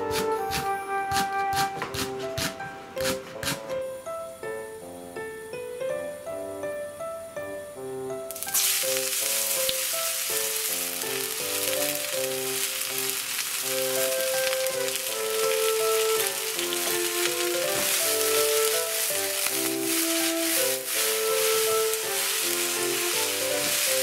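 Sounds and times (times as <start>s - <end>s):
background music: 0.0s - 24.0s
vegetables sizzling in hot oil: 8.3s - 24.0s.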